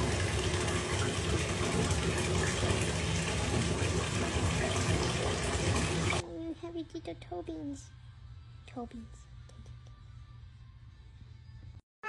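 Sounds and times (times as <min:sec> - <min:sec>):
water splashing into bathtub: 0:00.0 - 0:06.2.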